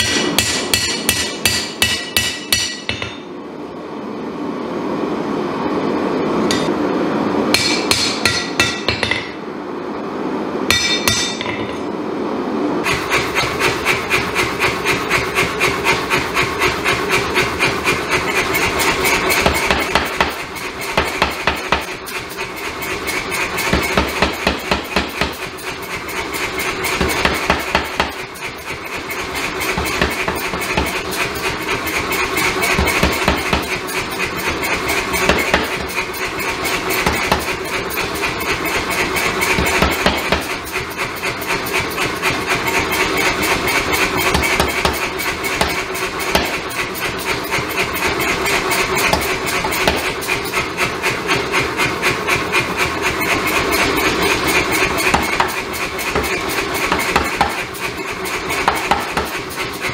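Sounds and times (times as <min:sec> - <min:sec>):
hand hammer ringing on anvil: 0:00.0 - 0:03.2
power hammer pounding metal: 0:00.0 - 0:03.3, 0:06.5 - 0:06.7, 0:07.5 - 0:09.4, 0:10.7 - 0:11.8, 0:12.8 - 0:59.9.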